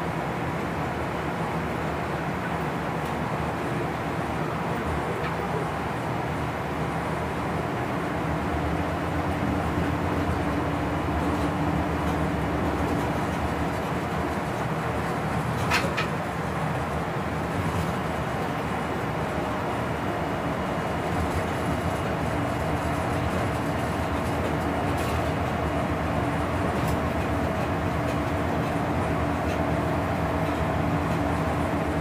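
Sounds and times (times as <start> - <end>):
train wheels rumbling on rail: 0.0 - 32.0
constant electric hum: 6.9 - 32.0.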